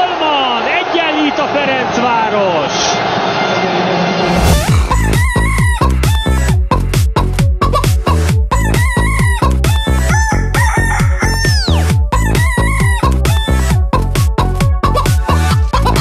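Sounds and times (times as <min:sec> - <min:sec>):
looped rooster crow: 0:10.1 - 0:11.9.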